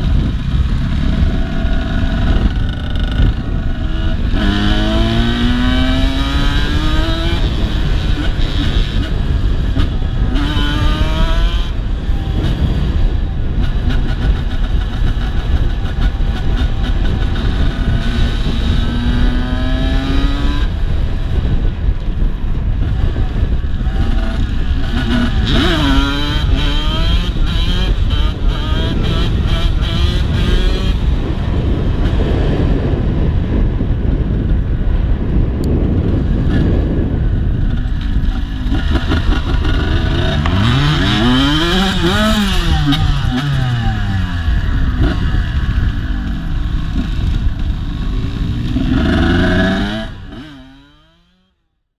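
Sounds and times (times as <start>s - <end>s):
dirt bike engine revving: 0.0s - 13.2s, 13.8s - 21.6s, 23.0s - 32.5s, 36.3s - 51.5s
wind on microphone: 0.0s - 51.5s.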